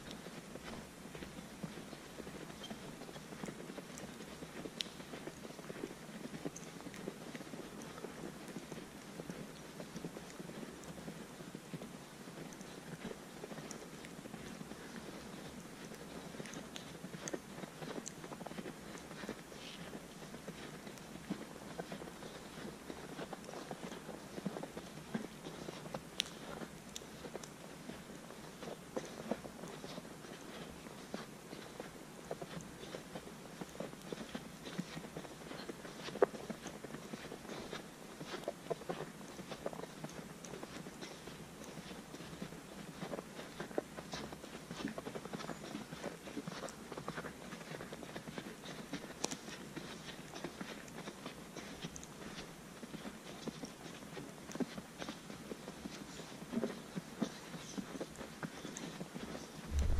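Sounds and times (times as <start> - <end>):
footsteps crunching in snow: 59.6 - 59.9.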